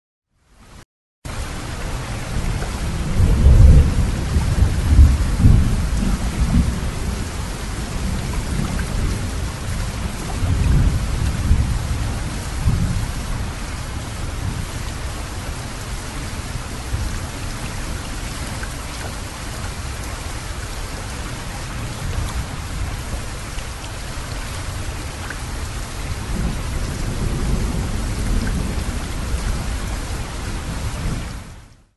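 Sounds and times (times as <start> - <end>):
heavy water rushing: 1.3 - 31.6.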